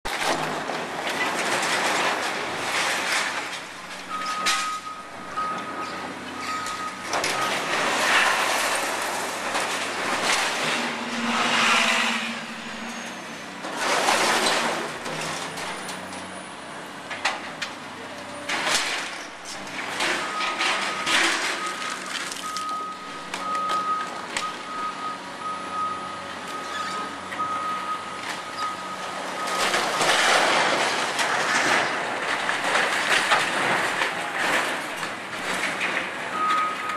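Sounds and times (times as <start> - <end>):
debris crashing down: 0.1 - 4.8, 5.9 - 16.0, 18.5 - 22.9, 29.2 - 36.9
wood and metal breaking: 0.1 - 5.2, 5.8 - 16.2, 18.4 - 22.8, 28.2 - 36.9
back-up alarm beeping: 4.1 - 7.8, 20.3 - 30.1.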